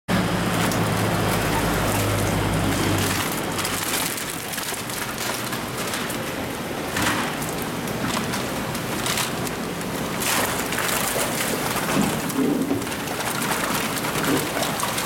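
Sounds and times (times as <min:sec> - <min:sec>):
truck hum: 0:00.1 - 0:04.4.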